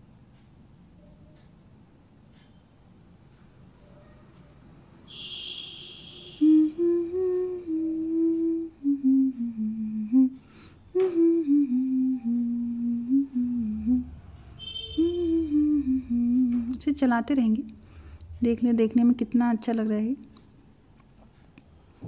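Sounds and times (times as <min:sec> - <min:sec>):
woman humming a slow tune: 0:06.3 - 0:17.7.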